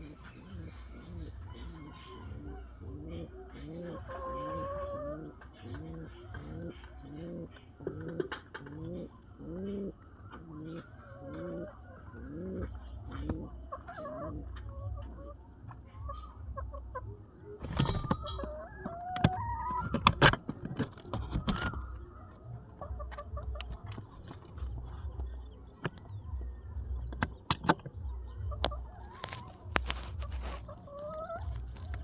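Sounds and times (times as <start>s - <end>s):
pigeon cooing: 0.0s - 15.4s.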